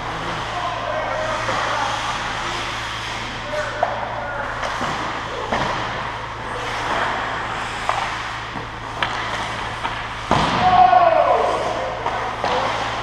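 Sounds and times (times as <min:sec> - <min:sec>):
skates on ice: 0:00.2 - 0:13.0
hockey sticks and puck clicking: 0:07.8 - 0:10.6, 0:11.2 - 0:13.0
loud thump: 0:10.3 - 0:10.8.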